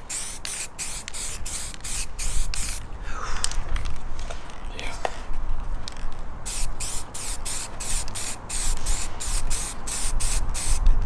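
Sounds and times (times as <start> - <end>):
spray paint can hissing: 0.0 - 2.8, 6.4 - 10.9.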